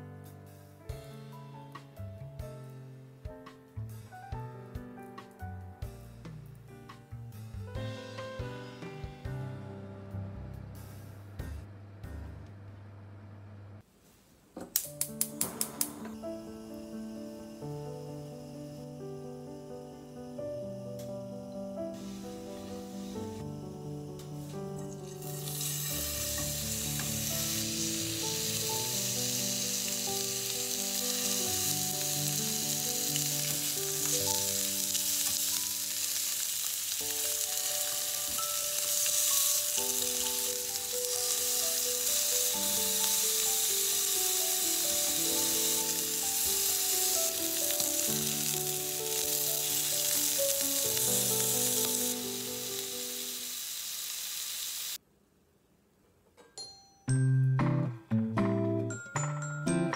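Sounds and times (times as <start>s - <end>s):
background music: 0.0s - 12.5s, 14.8s - 53.2s, 56.6s - 59.9s
lamb chops sizzling in oil: 24.8s - 55.0s.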